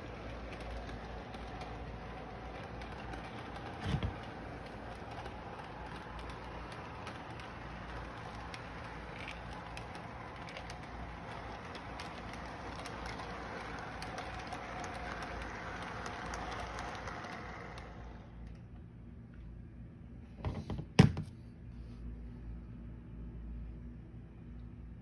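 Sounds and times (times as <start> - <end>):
model train motor hum: 0.0 - 18.6
wheels clicking on rails: 0.0 - 18.7.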